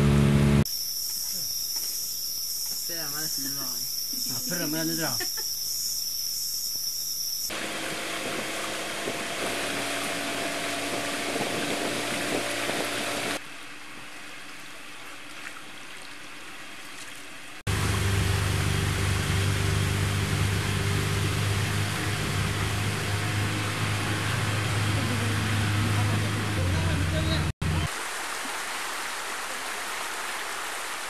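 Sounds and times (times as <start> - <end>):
boat engine humming: 0.0 - 0.7, 7.5 - 13.4, 17.7 - 27.9
insects trilling: 0.7 - 7.5.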